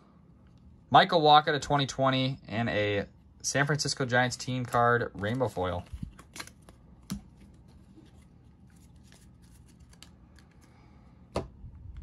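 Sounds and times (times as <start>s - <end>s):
low steady hum: 0.0s - 12.0s
cards being shuffled: 4.4s - 10.9s.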